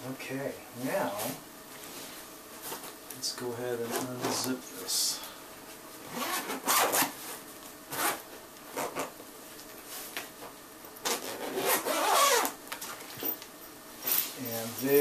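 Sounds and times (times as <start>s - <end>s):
zipper being pulled open: 6.0s - 7.2s, 7.9s - 9.1s, 11.0s - 12.6s.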